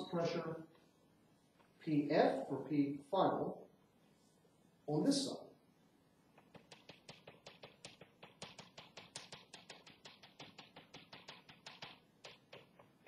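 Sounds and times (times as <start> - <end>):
chalk tapping on blackboard: 6.4 - 13.0.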